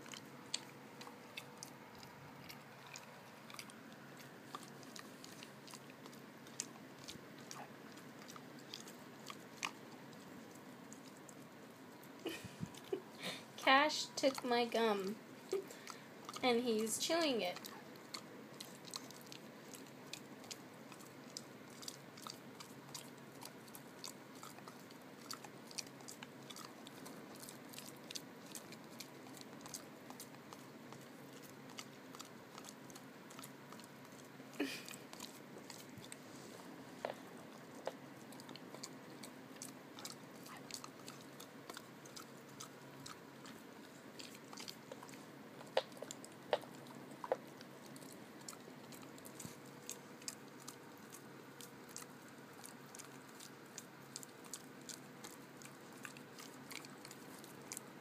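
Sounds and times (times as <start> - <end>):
dog chewing with clicks and smacks: 0.0 - 58.0.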